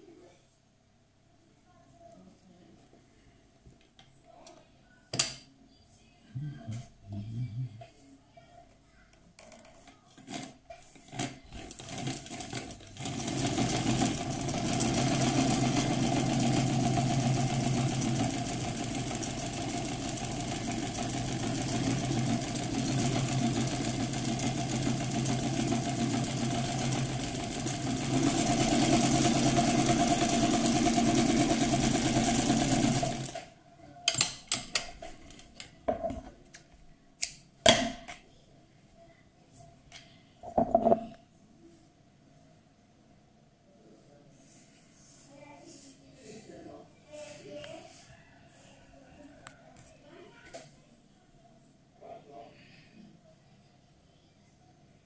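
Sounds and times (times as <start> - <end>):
sewing machine stitching: 10.3 - 33.5.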